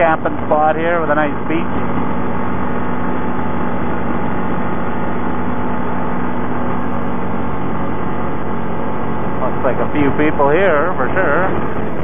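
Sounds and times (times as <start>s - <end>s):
atv engine humming: 0.0s - 12.0s.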